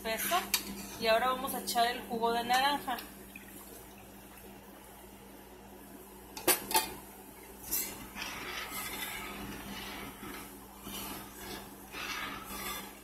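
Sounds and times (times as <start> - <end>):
spoon stirring thick sauce: 7.8 - 13.0.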